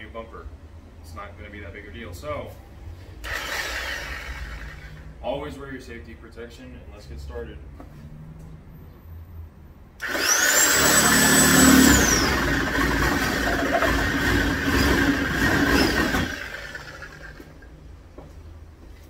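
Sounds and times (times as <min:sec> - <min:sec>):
reciprocating saw cutting: 0:03.2 - 0:05.0, 0:10.0 - 0:17.6.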